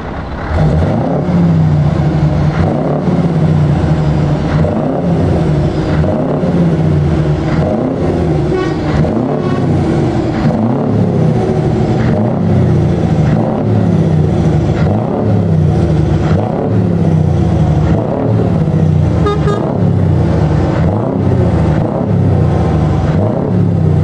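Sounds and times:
diesel truck engine revving: 0.0s - 24.0s
short horn toot: 8.5s - 9.8s, 19.2s - 19.8s.

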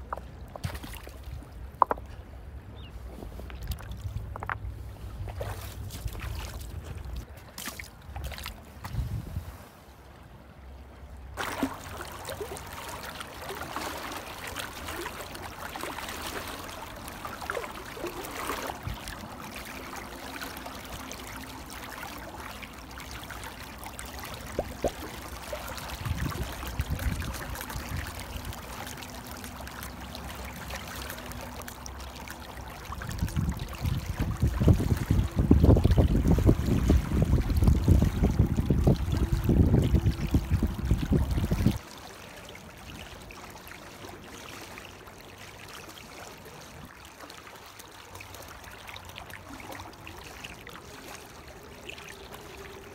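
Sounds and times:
wind rumble on microphone: 8.1s - 9.6s, 25.8s - 28.7s, 32.8s - 41.8s.

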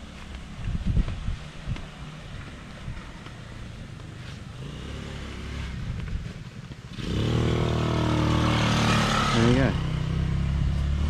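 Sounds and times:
quad bike engine revving: 4.5s - 6.0s, 6.9s - 11.0s.

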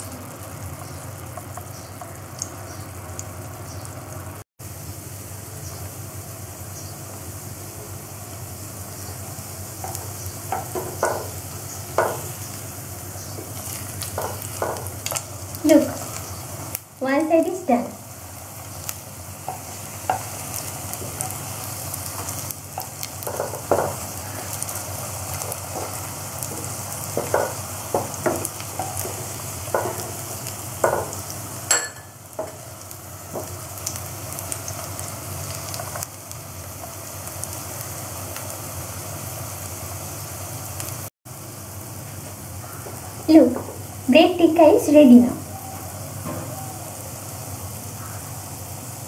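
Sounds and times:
patties sizzling in oil: 0.0s - 49.0s
spatula scraping and tapping pan: 9.8s - 12.3s, 13.4s - 15.2s, 22.1s - 24.1s, 25.4s - 30.2s.

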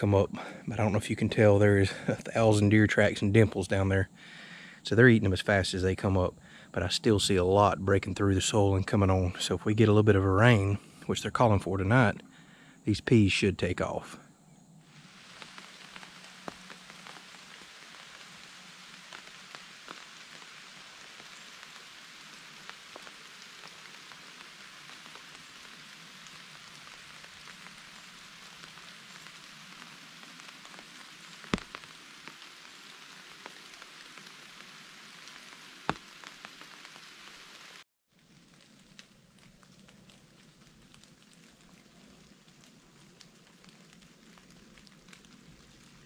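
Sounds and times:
rain falling on trees: 0.0s - 14.1s, 14.8s - 46.0s
rain pattering on umbrella: 14.9s - 46.0s.

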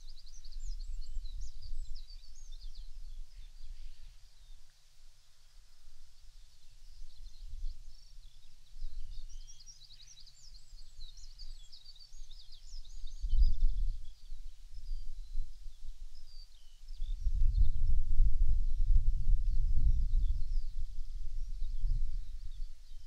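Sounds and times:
wind rumble on microphone: 0.0s - 4.5s, 6.9s - 9.6s, 10.4s - 23.0s
songbirds chirping and trilling: 0.0s - 17.8s.

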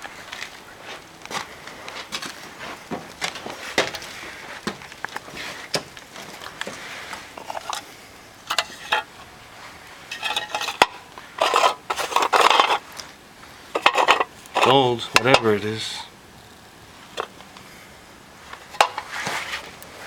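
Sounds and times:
footsteps crunching on gritty floor: 0.0s - 7.4s, 19.0s - 19.8s
metal tin scraping and rattling: 6.4s - 9.3s, 10.0s - 13.0s, 13.7s - 15.6s, 17.0s - 17.4s, 18.6s - 19.7s.

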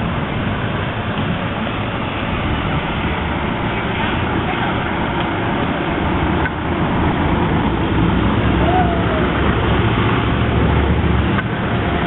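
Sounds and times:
rumbling street noise: 0.0s - 12.0s
faint voices: 8.5s - 9.7s.

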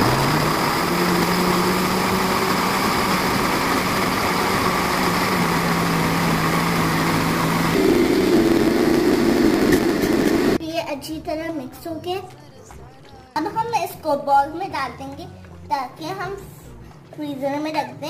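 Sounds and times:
blender motor running: 0.0s - 10.6s.

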